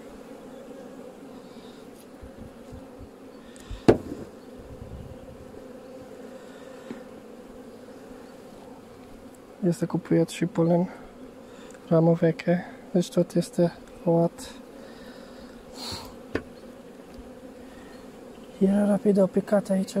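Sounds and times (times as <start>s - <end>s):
honeybees buzzing: 0.0s - 20.0s
sharp knock: 3.9s - 4.3s.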